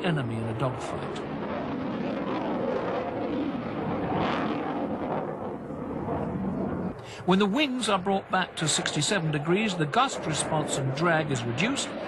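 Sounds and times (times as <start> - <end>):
jet engines roaring overhead: 0.0 - 12.0.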